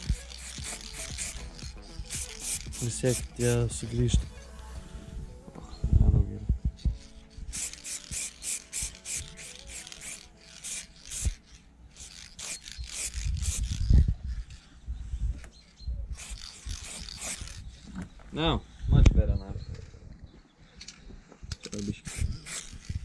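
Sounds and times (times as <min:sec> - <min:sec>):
spray can ball rattling: 0:00.0 - 0:04.0, 0:07.5 - 0:13.9, 0:16.2 - 0:17.6.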